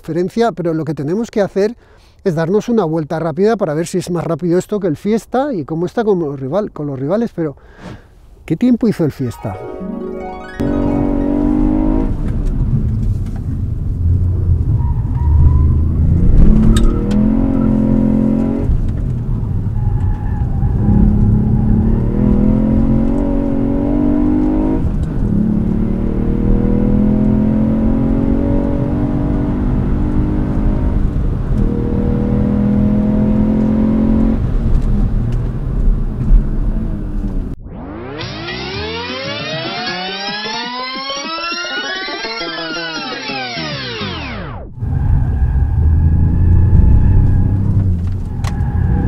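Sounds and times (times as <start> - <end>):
car engine at full throttle: 10.6 - 14.7, 15.8 - 19.7, 20.7 - 39.6.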